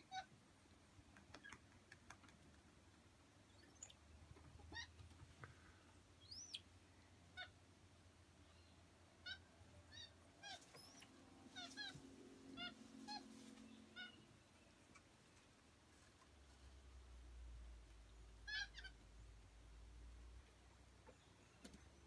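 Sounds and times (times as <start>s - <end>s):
monkeys chirping: 9.2s - 12.0s.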